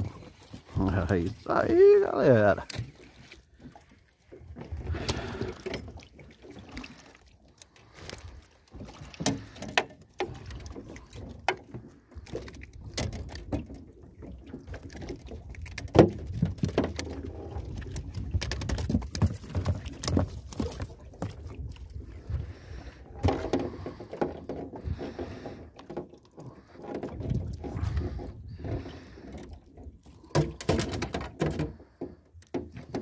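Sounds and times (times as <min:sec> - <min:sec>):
knocks and thumps in metal boat: 0:14.4 - 0:21.7, 0:23.1 - 0:26.1, 0:30.2 - 0:33.0.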